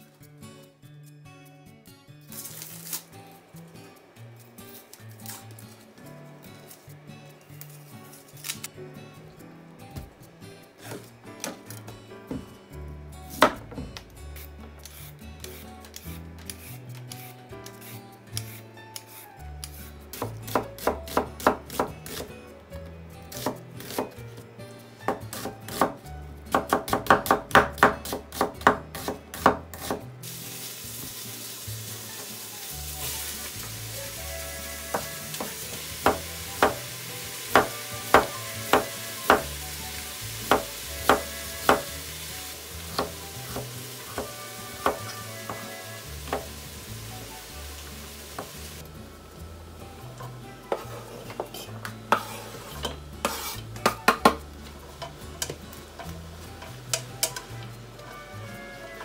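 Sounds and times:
soft background music: 0.0s - 59.0s
knife chopping on wooden board: 20.2s - 22.3s, 25.1s - 30.0s, 34.9s - 36.9s, 37.5s - 39.6s, 40.4s - 41.9s, 43.0s - 45.6s
food sizzling in a pot: 29.0s - 50.0s, 50.8s - 59.0s.

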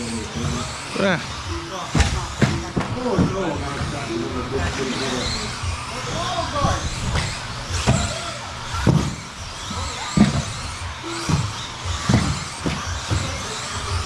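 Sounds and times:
buggy thumps: 0.0s - 14.0s
electric motor whine: 0.0s - 14.0s.

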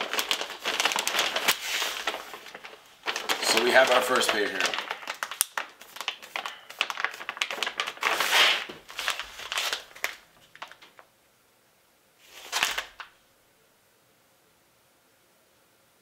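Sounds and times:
plastic packaging crinkling: 0.0s - 11.1s, 12.2s - 13.2s.

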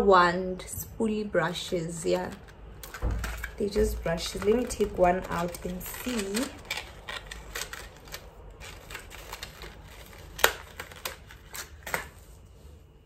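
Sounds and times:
plastic packet clicks and crinkles: 2.2s - 12.2s.

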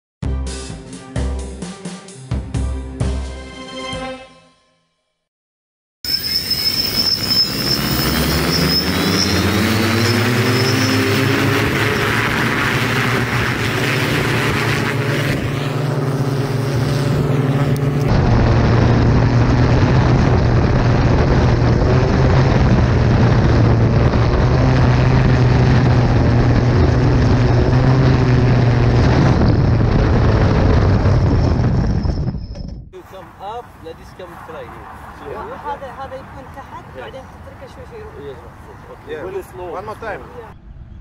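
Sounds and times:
hoverbike propellers droning: 6.1s - 32.3s
wind on microphone: 10.4s - 33.0s.

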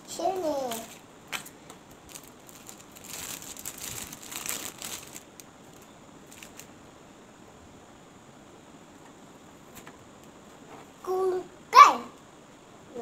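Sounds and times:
plastic packaging crinkling: 0.3s - 6.7s.

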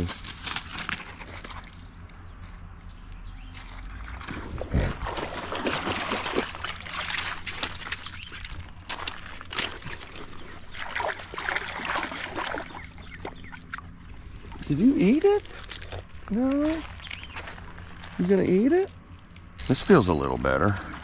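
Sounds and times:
creek water splashing: 3.5s - 16.2s, 19.6s - 21.0s.

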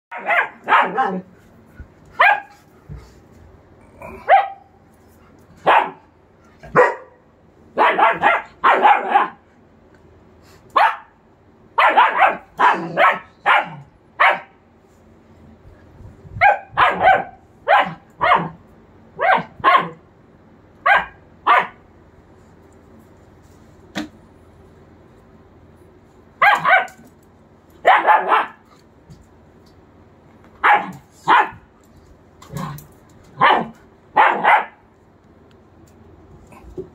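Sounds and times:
puppy barking: 0.1s - 1.3s, 2.2s - 2.6s, 4.2s - 4.7s, 5.6s - 6.1s, 6.7s - 7.2s, 7.8s - 9.4s, 10.8s - 11.2s, 11.8s - 14.6s, 16.4s - 18.6s, 19.2s - 20.0s, 20.8s - 21.8s, 26.4s - 27.0s, 27.8s - 28.6s, 30.6s - 31.7s, 33.4s - 34.8s.

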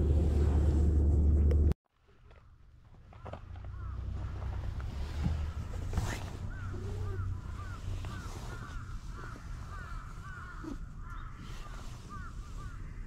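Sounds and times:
low rumble: 0.0s - 1.8s.

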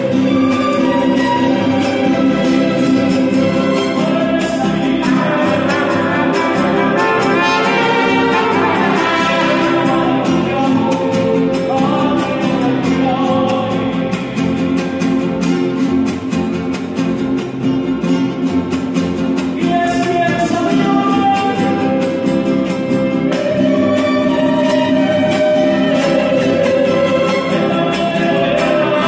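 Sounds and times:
violins: 0.0s - 11.1s, 22.8s - 29.0s
strummed guitars: 0.0s - 29.0s
trumpets: 5.1s - 10.5s.

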